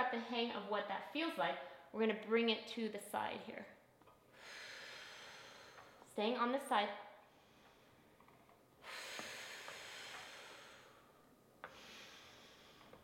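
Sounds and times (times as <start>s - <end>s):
woman breathing: 4.3s - 6.1s, 7.2s - 13.0s.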